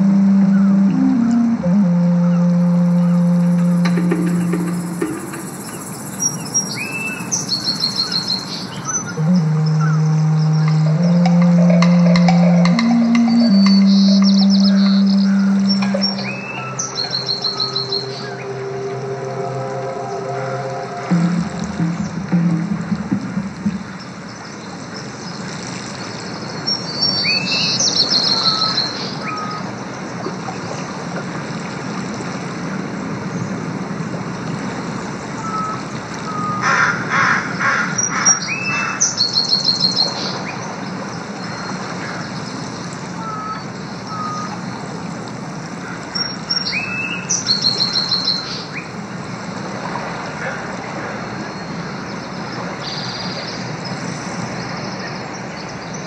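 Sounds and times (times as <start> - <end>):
birds chirping and trilling: 2.3 - 21.1, 26.6 - 29.7, 43.2 - 49.0.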